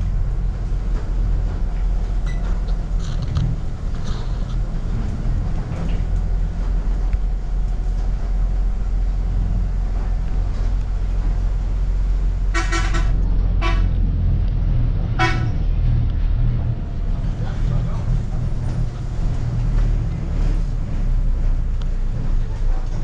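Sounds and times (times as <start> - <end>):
bus engine rumbling: 0.0 - 23.0
vehicle horn honking: 12.5 - 13.9, 15.2 - 15.5.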